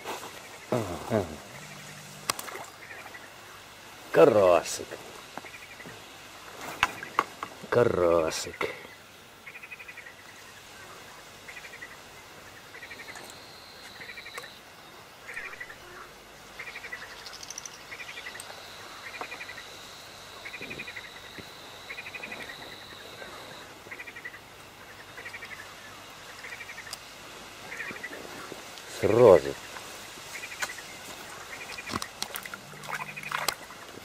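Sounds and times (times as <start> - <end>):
frog croaking: 0.5 - 3.4, 9.4 - 10.4, 11.4 - 28.2, 30.4 - 34.0.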